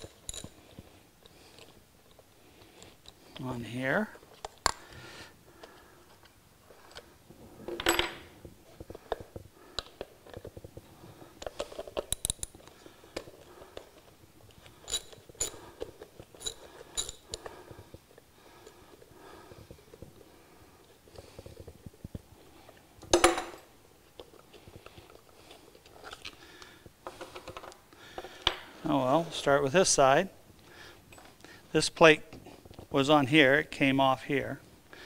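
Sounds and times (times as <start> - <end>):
ratchet metal clicks and clinks: 0.0 - 0.5, 14.7 - 17.5.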